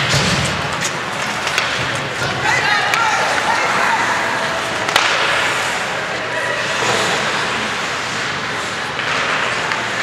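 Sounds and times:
hockey stick hitting puck: 0:00.0 - 0:03.5, 0:04.8 - 0:05.8, 0:08.9 - 0:10.0
skates scraping on ice: 0:00.0 - 0:10.0
spectators' voices: 0:00.0 - 0:10.0.

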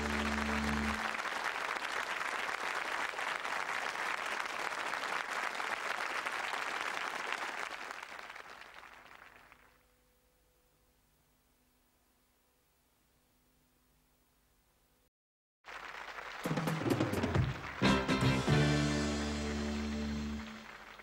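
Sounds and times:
held music chord: 0:00.0 - 0:01.1, 0:17.8 - 0:20.6
audience applauding: 0:00.0 - 0:09.8, 0:15.6 - 0:21.0.

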